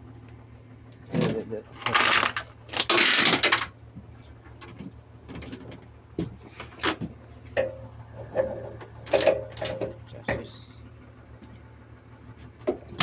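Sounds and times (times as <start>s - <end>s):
steady low hum: 0.0s - 13.0s
sharp knocks and clanks: 4.5s - 10.6s.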